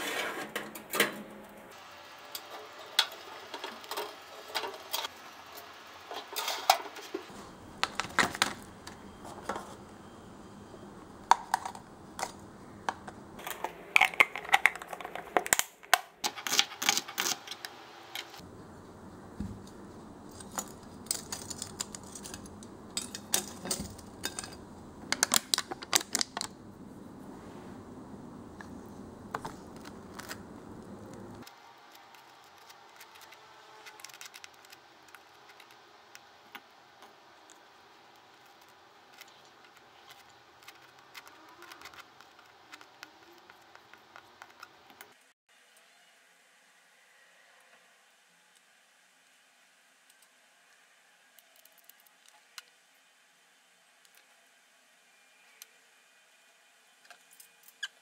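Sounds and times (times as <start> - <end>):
metal tongs against oven rack: 20.4 - 24.6.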